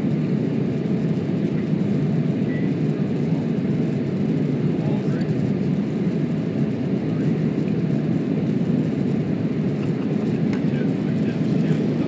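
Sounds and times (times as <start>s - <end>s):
jet engine cabin drone: 0.0s - 12.0s.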